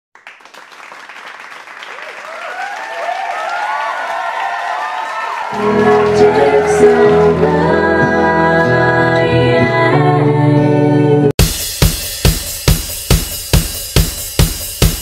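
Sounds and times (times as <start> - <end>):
audience applause and cheering: 0.2 - 7.7.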